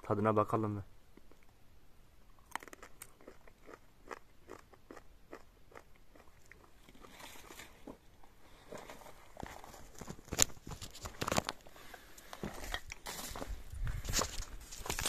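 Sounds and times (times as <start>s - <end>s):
fruit crunching while chewing: 2.3s - 8.0s.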